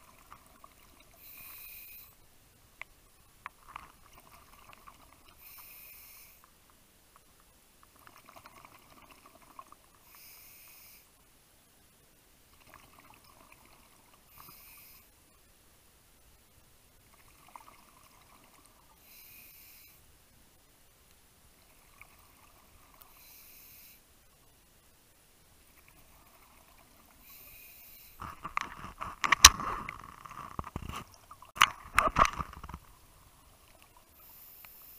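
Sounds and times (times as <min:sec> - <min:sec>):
regulator hissing inhale: 0:01.2 - 0:02.2, 0:05.4 - 0:06.5, 0:10.0 - 0:11.1, 0:14.3 - 0:15.2, 0:19.0 - 0:20.0, 0:23.1 - 0:24.1, 0:27.2 - 0:28.3, 0:34.2 - 0:34.9.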